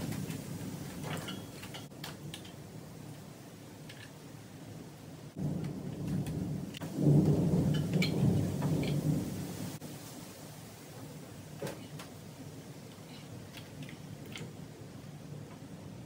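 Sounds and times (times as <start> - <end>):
wiring harness rustling and scraping: 0.0 - 2.6.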